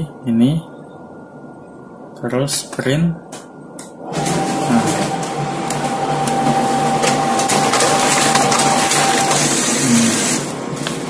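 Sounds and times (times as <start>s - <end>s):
copier whine: 3.3s - 11.0s
copier running: 4.0s - 11.0s.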